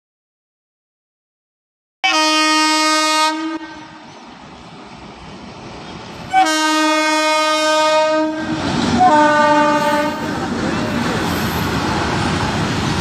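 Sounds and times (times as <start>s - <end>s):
locomotive horn blasts: 2.0s - 4.1s, 6.3s - 10.3s
passing train running noise: 2.0s - 13.0s.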